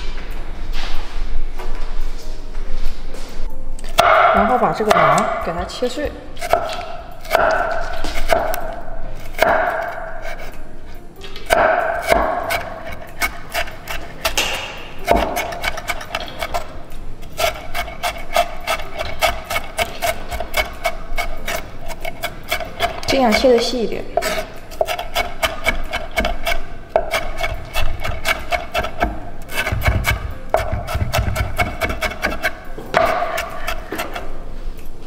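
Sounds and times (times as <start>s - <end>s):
knife chopping on wooden board: 6.4s - 8.7s, 9.4s - 10.4s, 11.5s - 16.6s, 17.4s - 23.6s, 24.2s - 34.2s.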